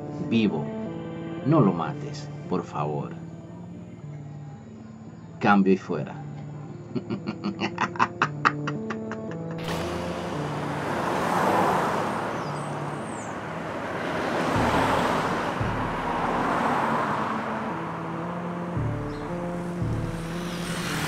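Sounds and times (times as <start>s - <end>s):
vehicles passing: 7.1s - 21.0s.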